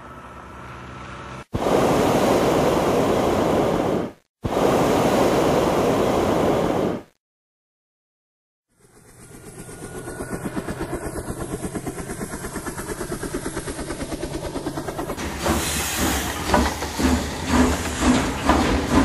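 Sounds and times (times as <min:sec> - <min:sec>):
helicopter rotor chop: 0:08.7 - 0:19.0
steam locomotive chuffing: 0:08.7 - 0:19.0
hissing steam: 0:15.2 - 0:19.0.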